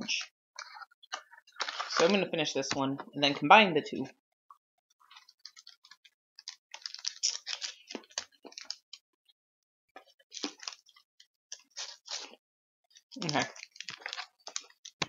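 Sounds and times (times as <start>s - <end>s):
hard candy wrapper crackling: 5.1s - 8.8s, 10.3s - 15.0s.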